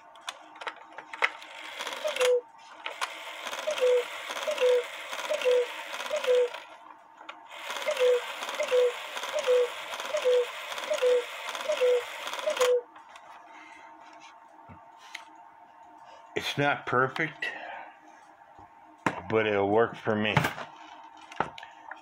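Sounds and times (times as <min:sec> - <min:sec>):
clockwork whirring: 0:01.2 - 0:06.8, 0:07.5 - 0:12.8
cuckoo clock calling: 0:01.7 - 0:02.4, 0:03.4 - 0:06.8, 0:07.6 - 0:12.9.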